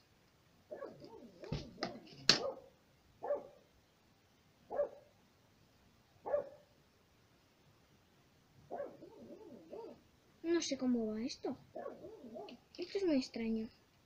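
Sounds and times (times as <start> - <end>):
dog barking: 0.7 - 3.6, 4.7 - 5.1, 6.2 - 6.7, 8.7 - 10.0, 11.7 - 12.6.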